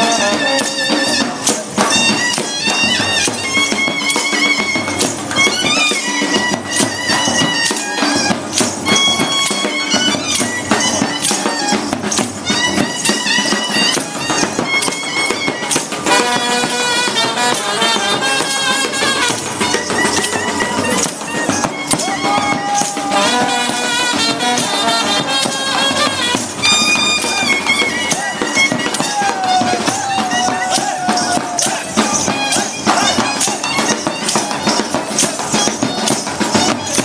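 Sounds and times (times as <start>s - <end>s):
wind instruments playing melody: 0.0s - 37.0s.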